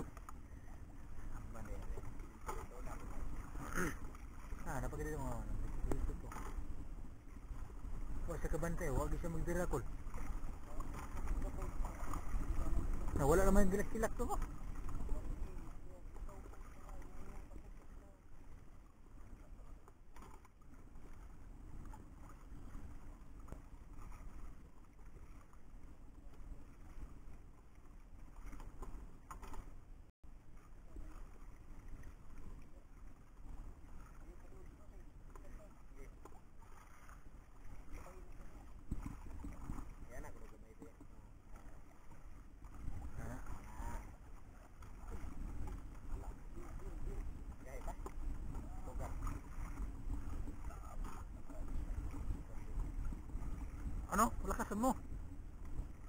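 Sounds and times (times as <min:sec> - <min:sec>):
faint line clicks: 0:00.0 - 0:00.4
sea noise: 0:00.0 - 0:56.0
water lapping against hull: 0:00.0 - 0:56.0
wind: 0:00.0 - 0:56.0.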